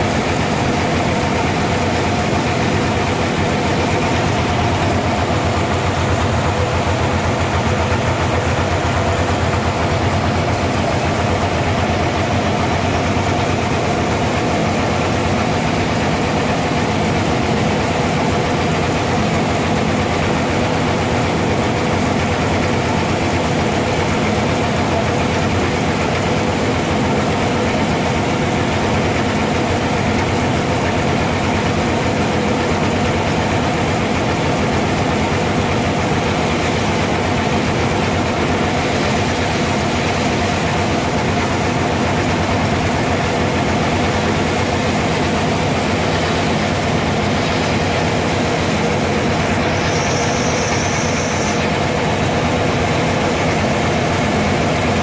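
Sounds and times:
sawmill machinery humming: 0:00.0 - 0:55.0.

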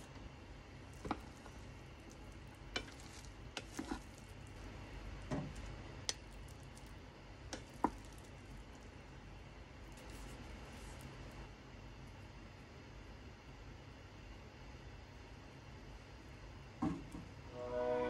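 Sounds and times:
rice paddle scraping pot: 0:02.7 - 0:04.2.

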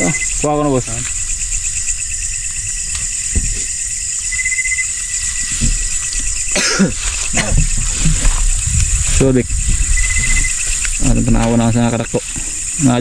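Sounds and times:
crickets and insects chorus: 0:00.0 - 0:13.0
soft low thumps: 0:07.3 - 0:12.6.

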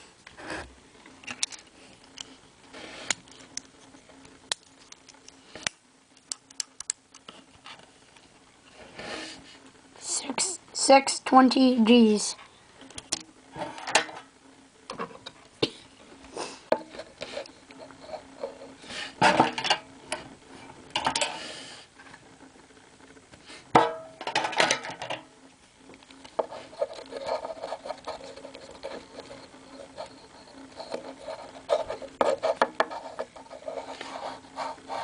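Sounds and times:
fingers rubbing and scraping: 0:26.4 - 0:35.0.

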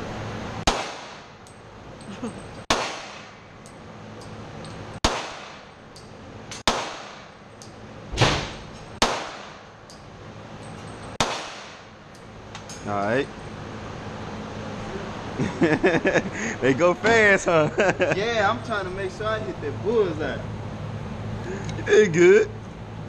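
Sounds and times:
handgun shots echoing indoors: 0:00.7 - 0:01.2, 0:02.7 - 0:03.3, 0:06.5 - 0:07.3, 0:08.2 - 0:09.6, 0:11.2 - 0:11.8.

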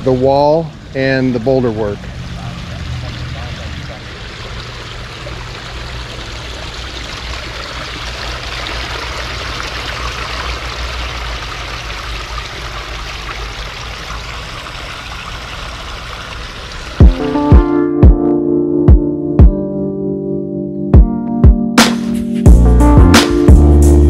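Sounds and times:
waterfall splashing over rocks: 0:02.2 - 0:17.5.

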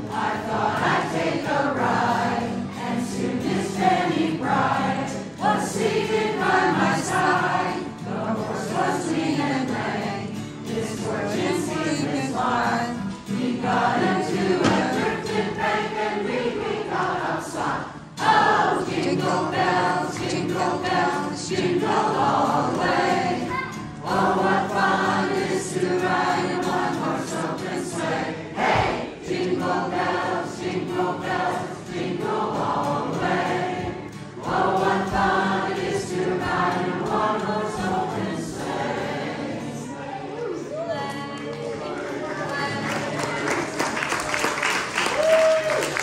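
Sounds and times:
choir singing: 0:00.0 - 0:40.8
acoustic guitar: 0:00.0 - 0:44.0.

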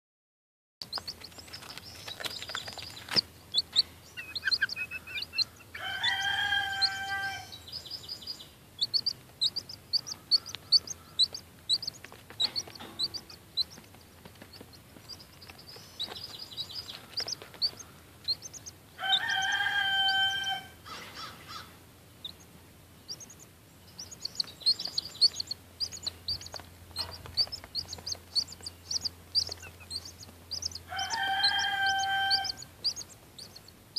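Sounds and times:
chicks peeping: 0:00.8 - 0:33.9
chicken drawn-out call: 0:04.2 - 0:07.6, 0:19.0 - 0:21.8, 0:30.7 - 0:33.0.

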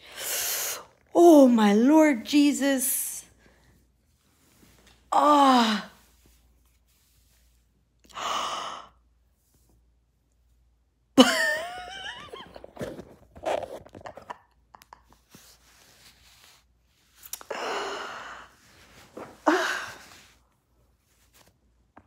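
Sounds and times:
woman moaning in pain: 0:05.1 - 0:06.0
woman sighing and exhaling: 0:05.1 - 0:06.1, 0:08.1 - 0:09.0, 0:17.4 - 0:18.6, 0:19.2 - 0:20.4.

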